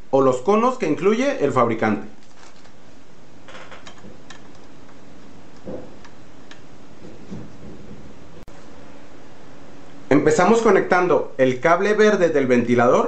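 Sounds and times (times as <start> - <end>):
steady background hiss: 0.0 - 13.0
faint ticks and clicks of wires: 3.8 - 6.7.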